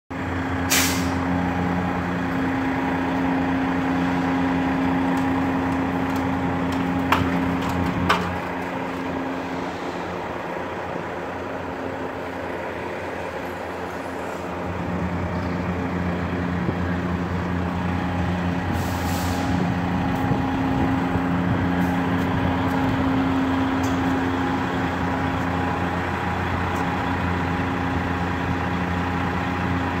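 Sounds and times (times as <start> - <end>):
diesel engine idling: 0.1 - 30.0
brief hiss: 0.7 - 1.2.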